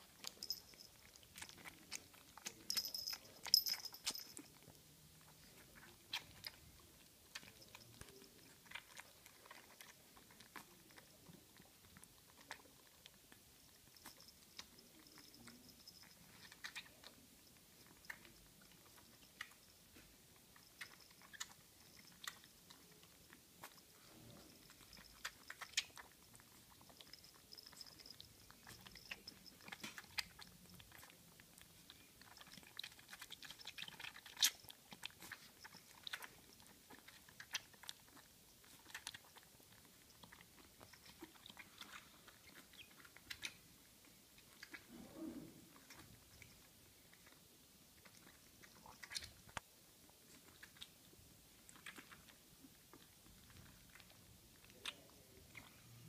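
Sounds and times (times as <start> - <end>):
small bell tinkling: 0.2 - 1.3, 2.6 - 4.6, 13.9 - 16.5
puppy suckling from bottle: 5.3 - 45.0, 45.7 - 56.0.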